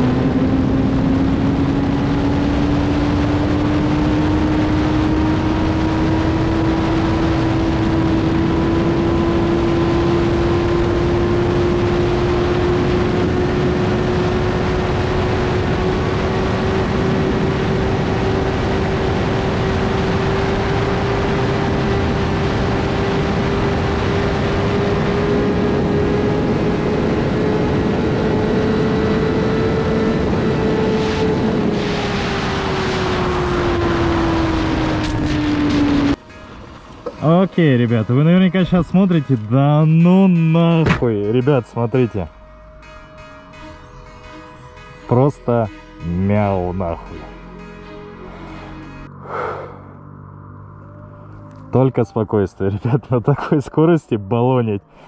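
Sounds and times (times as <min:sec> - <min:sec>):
wind noise: 0:00.0 - 0:37.2
motorcycle engine at full throttle: 0:00.0 - 0:39.1.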